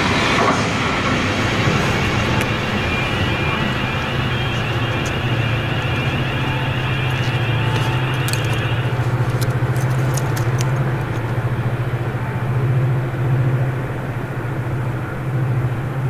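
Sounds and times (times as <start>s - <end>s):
diesel locomotive low drone: 0.0s - 16.0s
high whine: 0.0s - 16.0s.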